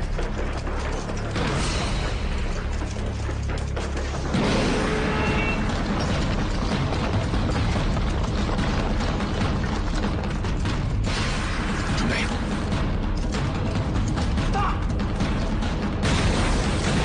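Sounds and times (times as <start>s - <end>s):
mechanical clanking and rattling: 0.0s - 11.4s
dramatic background music: 0.0s - 17.0s.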